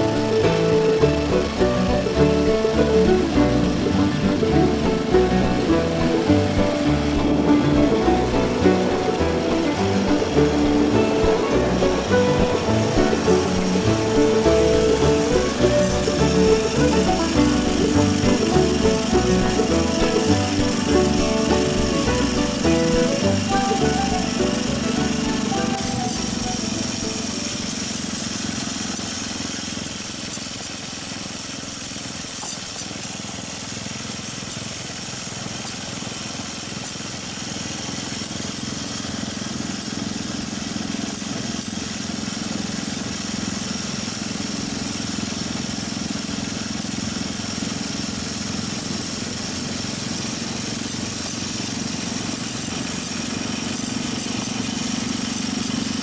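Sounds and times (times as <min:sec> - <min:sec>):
steady hiss: 0:00.0 - 0:31.3
small engine running: 0:00.0 - 0:56.0.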